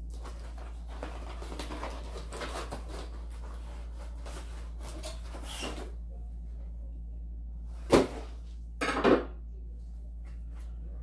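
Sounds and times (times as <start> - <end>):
packaging rustling and crinkling: 0.0 - 5.9
steady low hum: 0.0 - 11.0.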